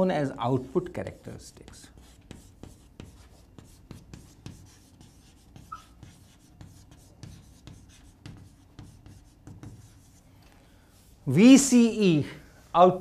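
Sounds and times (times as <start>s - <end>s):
chalk tapping and scratching: 0.9s - 10.4s.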